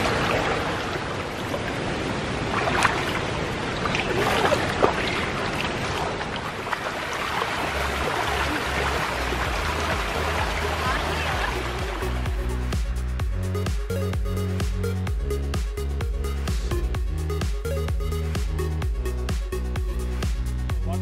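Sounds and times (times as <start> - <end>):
feet splashing in water: 0.0 - 12.4
stream water rushing over rocks: 0.0 - 13.0.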